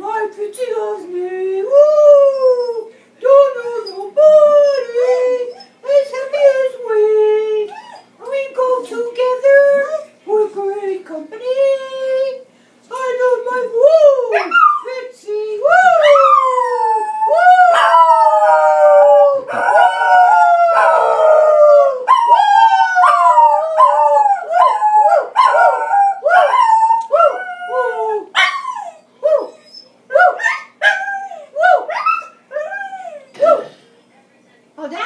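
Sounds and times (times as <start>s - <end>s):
dog howling: 15.7s - 33.7s.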